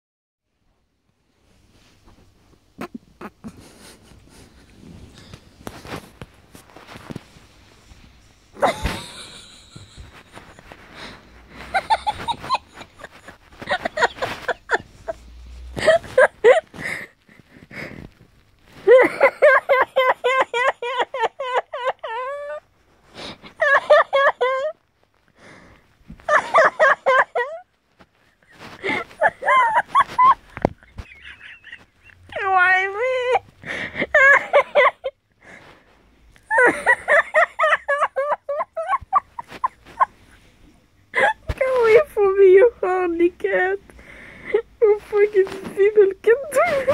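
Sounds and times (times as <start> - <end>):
woman laughing: 8.6 - 18.0, 18.8 - 22.6, 23.4 - 24.8, 26.2 - 27.7, 28.4 - 35.2, 36.4 - 40.4, 41.1 - 43.8, 44.5 - 46.9.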